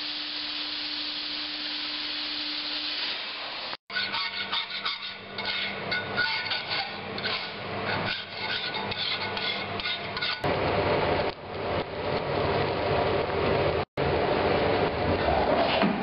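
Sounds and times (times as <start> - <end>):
metal being filed by hand: 3.9 - 10.5.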